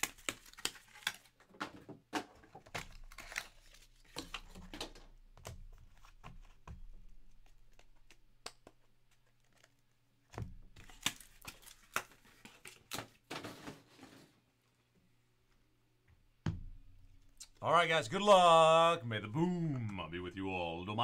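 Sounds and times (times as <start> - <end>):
trading cards rustling and clicking: 0.0 - 1.8, 2.5 - 13.6.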